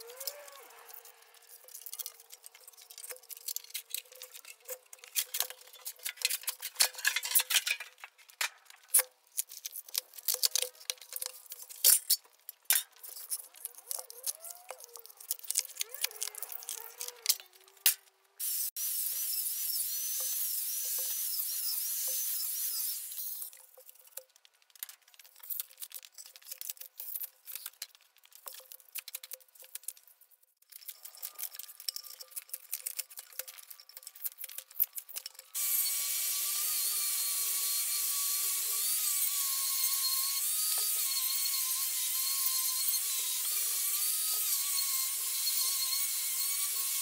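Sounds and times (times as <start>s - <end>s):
sheet metal and foam tearing: 0.0s - 18.2s, 30.7s - 35.6s.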